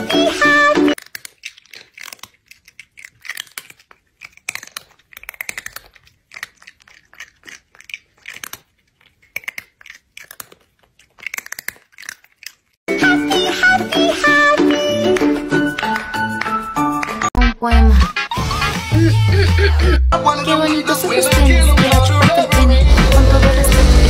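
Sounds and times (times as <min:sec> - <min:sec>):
music: 0:00.0 - 0:01.0, 0:12.9 - 0:24.0
crunchy chewing: 0:00.9 - 0:12.9.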